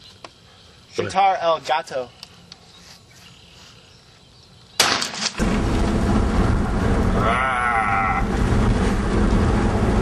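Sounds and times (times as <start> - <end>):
wavering bleat-like cry: 7.2 - 8.3.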